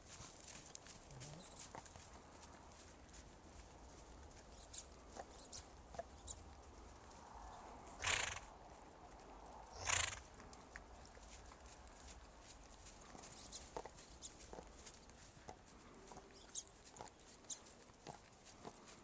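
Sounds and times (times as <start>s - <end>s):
horse snorting: 8.0s - 8.5s, 9.8s - 10.3s
faint hoof thuds: 9.1s - 19.0s.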